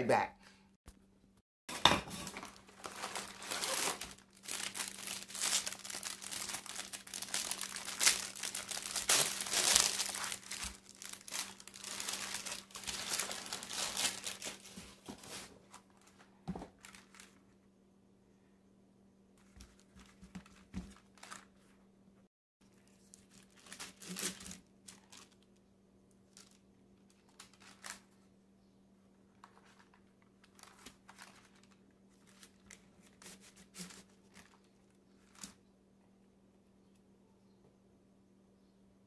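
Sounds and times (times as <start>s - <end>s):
parchment paper rustling: 2.1s - 17.6s, 19.4s - 21.8s, 22.7s - 25.5s, 26.2s - 28.2s, 29.3s - 35.6s.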